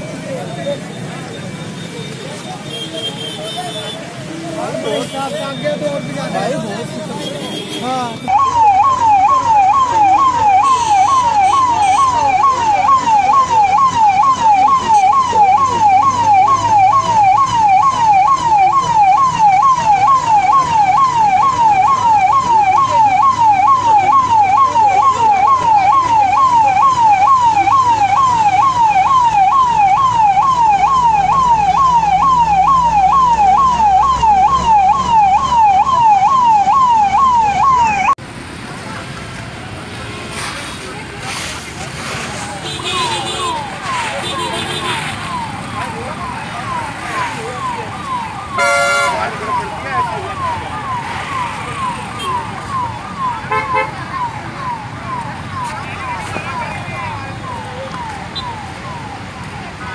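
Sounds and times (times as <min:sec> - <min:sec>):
siren yelping: 0:08.2 - 0:38.2, 0:42.9 - 0:59.9.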